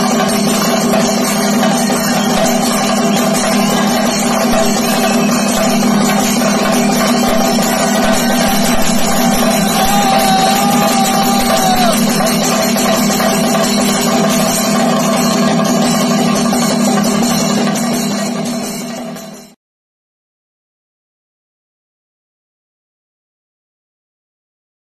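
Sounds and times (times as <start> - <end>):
chenda drums struck with sticks: 0.0 - 18.4
hand cymbals: 0.0 - 19.6.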